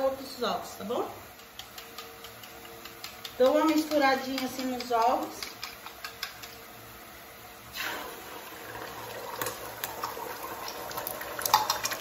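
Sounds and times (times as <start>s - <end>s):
eggs sizzling and frying: 0.0s - 12.0s
bowl clicking against pan: 1.4s - 6.6s
eggs poured into pan: 7.7s - 12.0s.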